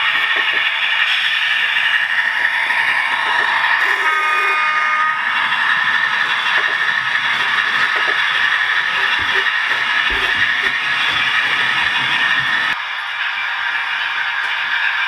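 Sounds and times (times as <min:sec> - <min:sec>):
model train whirring rattle: 0:05.2 - 0:15.0.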